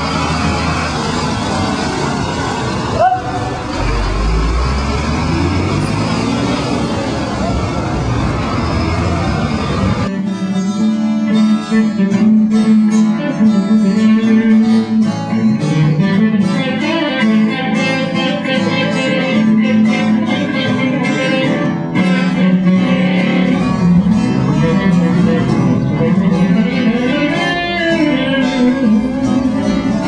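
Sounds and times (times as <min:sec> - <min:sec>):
sustained low tone: 0:00.0 - 0:16.0, 0:22.3 - 0:30.0
plucked string instrument music: 0:10.0 - 0:30.0.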